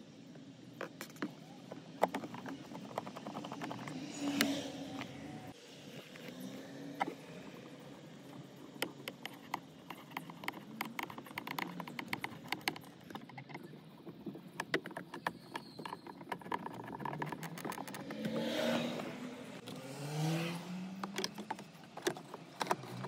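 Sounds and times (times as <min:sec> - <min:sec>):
screwdriver turning a screw: 0:02.0 - 0:04.6, 0:07.8 - 0:18.6, 0:21.0 - 0:23.0
quick irregular clicks: 0:08.3 - 0:18.4.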